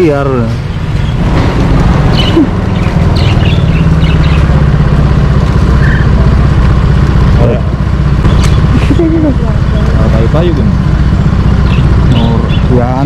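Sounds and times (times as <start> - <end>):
engine idling: 0.0 - 13.0
bird chirps: 0.7 - 1.4, 2.0 - 4.6, 5.8 - 6.2, 8.2 - 8.7, 11.0 - 13.0.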